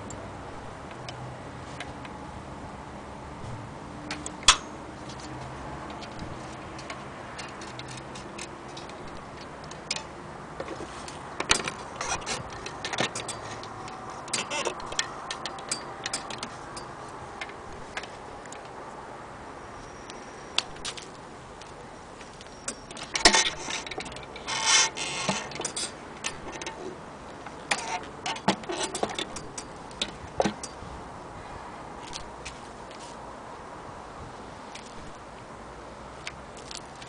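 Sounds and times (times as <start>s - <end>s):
short rustle: 10.6s - 15.0s, 32.0s - 33.3s.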